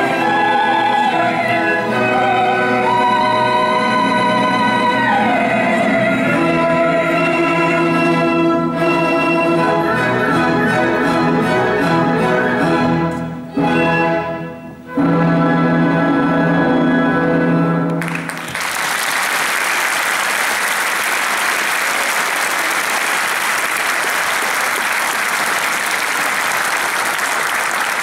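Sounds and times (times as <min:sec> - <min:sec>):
orchestra chords: 0:00.0 - 0:18.5
audience applause: 0:18.0 - 0:28.0.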